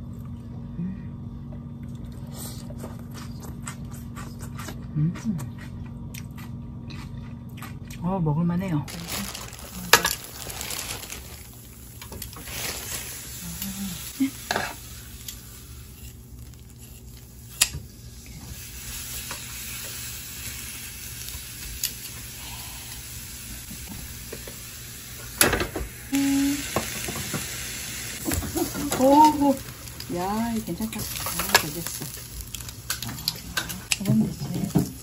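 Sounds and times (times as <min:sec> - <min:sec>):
meat sizzling on a grill: 0:09.0 - 0:35.0.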